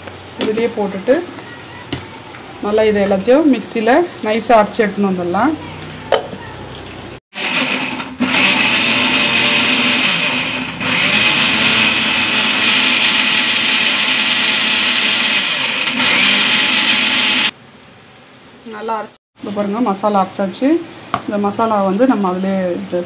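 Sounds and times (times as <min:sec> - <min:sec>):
mixer grinder running: 0:07.3 - 0:17.6.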